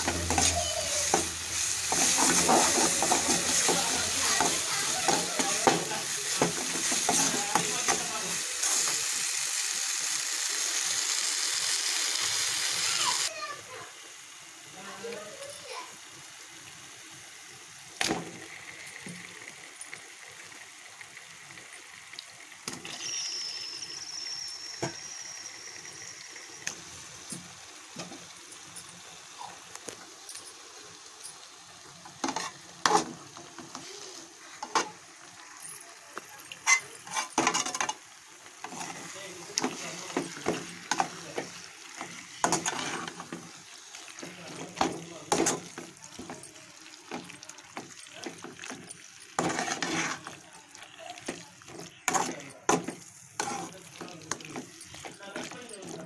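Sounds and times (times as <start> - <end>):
metal spoon scraping a pan: 0.0 - 9.0, 32.1 - 35.0, 36.5 - 38.0, 38.6 - 43.6, 47.2 - 50.4, 51.7 - 56.0
sauce sizzling in a metal pan: 0.0 - 56.0.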